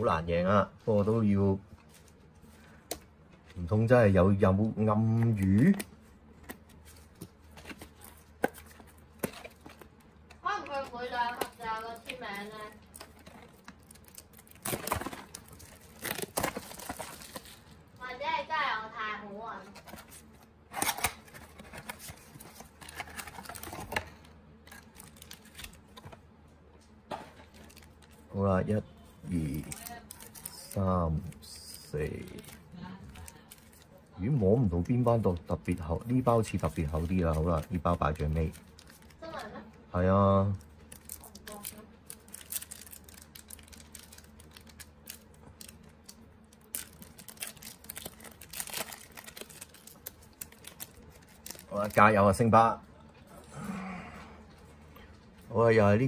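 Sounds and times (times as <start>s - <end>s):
card pack crackle: 10.7s - 17.8s, 19.8s - 26.0s, 29.3s - 39.5s, 40.5s - 52.4s
cards clicking and rustling: 19.8s - 26.2s.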